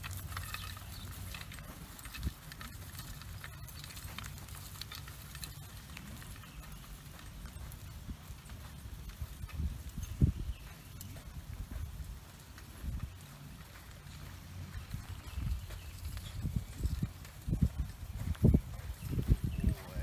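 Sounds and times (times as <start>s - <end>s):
wooden bar dragging on gravel: 0.0s - 6.9s
footsteps crunching on gravel: 0.0s - 20.0s
horse hoofbeats on gravel: 0.0s - 20.0s.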